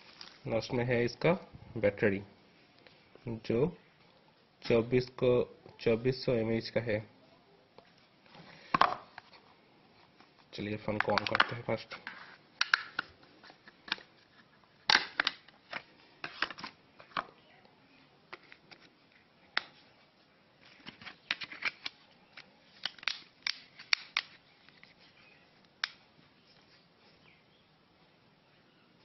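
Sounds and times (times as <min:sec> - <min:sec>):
smartphone plastic clicks and taps: 0:11.0 - 0:11.6.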